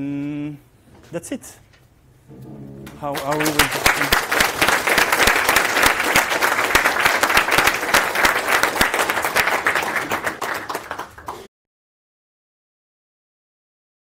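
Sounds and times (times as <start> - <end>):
audience applauding: 2.8 - 11.5.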